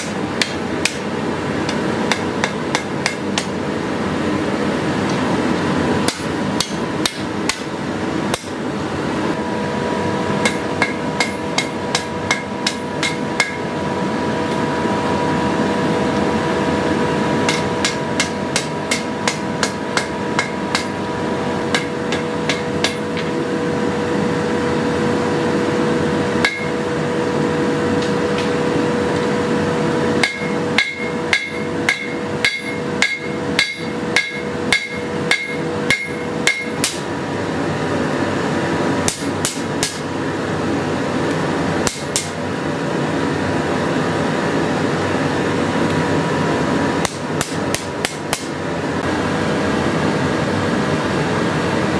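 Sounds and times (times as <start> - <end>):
hammer striking metal on anvil: 0.0 - 1.1, 1.7 - 3.6, 6.0 - 8.6, 10.4 - 13.7, 17.4 - 21.0, 21.6 - 23.4, 26.4 - 26.8, 30.2 - 37.1, 39.0 - 40.0, 41.8 - 42.4, 47.0 - 48.6
steady rushing noise and hum: 0.0 - 51.9.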